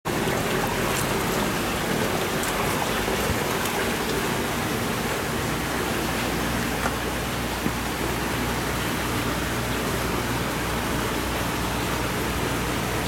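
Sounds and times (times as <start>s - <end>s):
rushing water in fish tank: 0.1s - 13.0s.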